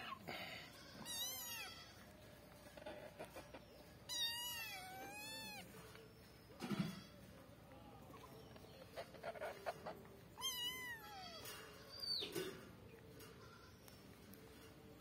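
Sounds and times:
kitten meowing: 0:01.0 - 0:01.9, 0:04.1 - 0:05.7, 0:10.4 - 0:11.5.

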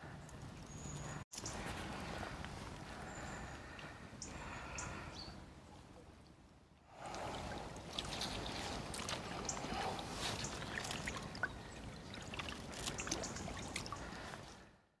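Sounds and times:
small splashes and drips: 0:05.6 - 0:14.7
shallow water running: 0:06.9 - 0:14.6.

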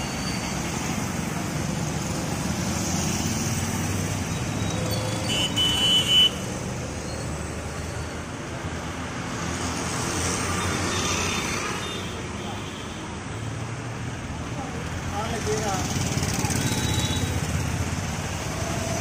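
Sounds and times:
traffic passing: 0:00.0 - 0:19.0
vehicle horn: 0:05.3 - 0:06.4.

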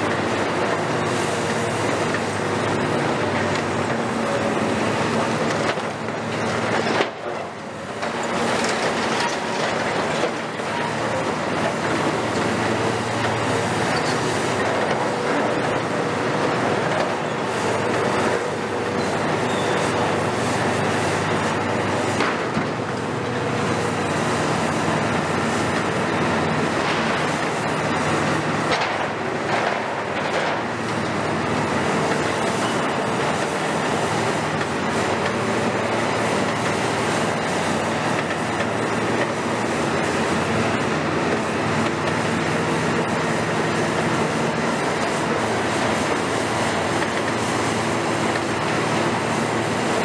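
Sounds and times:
excavator engine and hydraulics: 0:00.0 - 0:50.0.

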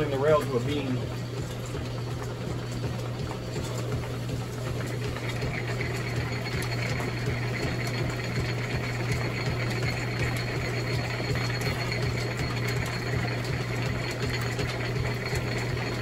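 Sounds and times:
drill press humming: 0:00.0 - 0:16.0
drill bit cutting iron: 0:04.8 - 0:16.0.

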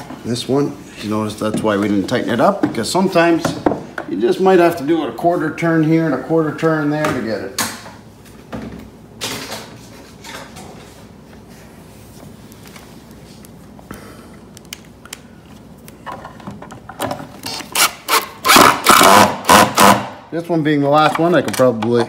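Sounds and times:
power drill driving screw into wood: 0:17.5 - 0:20.2.

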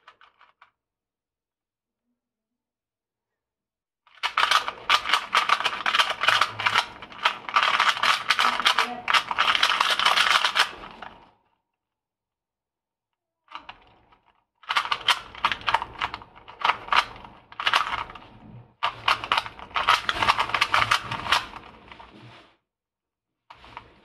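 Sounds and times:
puzzle cube clicking turns: 0:04.1 - 0:11.2, 0:14.6 - 0:18.2, 0:18.8 - 0:21.6.

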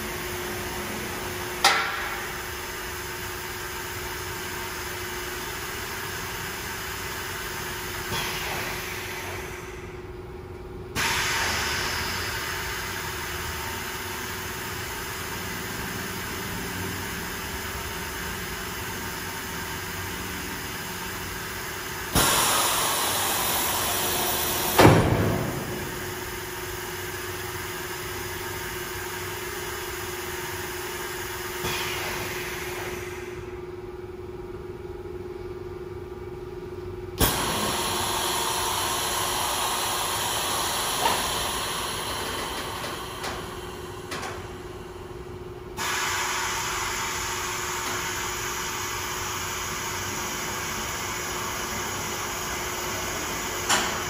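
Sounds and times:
sharp pneumatic clunk: 0:01.6 - 0:02.4, 0:08.0 - 0:10.0, 0:10.9 - 0:13.1, 0:22.0 - 0:26.8, 0:31.5 - 0:33.5, 0:37.2 - 0:44.9, 0:45.7 - 0:48.9, 0:52.5 - 0:54.0
pneumatic hiss: 0:08.0 - 0:10.0, 0:11.0 - 0:13.2, 0:22.1 - 0:27.0, 0:31.5 - 0:33.5, 0:37.2 - 0:44.9, 0:45.8 - 0:54.0
machine hum: 0:13.2 - 0:45.8.

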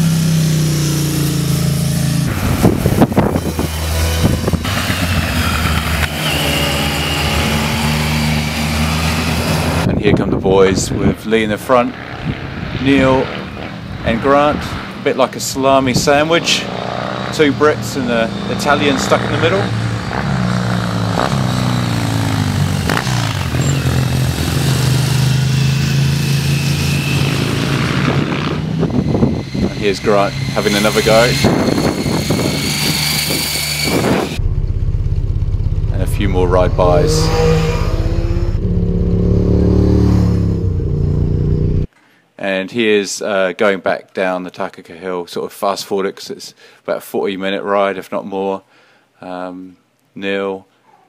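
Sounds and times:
motorcycle engines passing: 0:00.0 - 0:10.1, 0:10.7 - 0:41.9
motorcycle engine steady note: 0:34.1 - 0:41.9.

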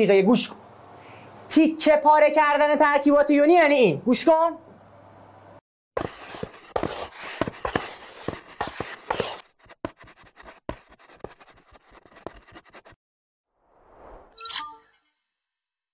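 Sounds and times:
chalk scratching on a blackboard: 0:06.0 - 0:13.0.

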